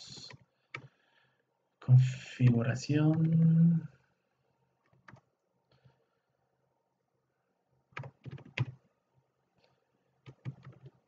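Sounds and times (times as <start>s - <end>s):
computer keyboard typing: 5.0s - 5.2s, 8.0s - 8.8s, 10.3s - 11.0s.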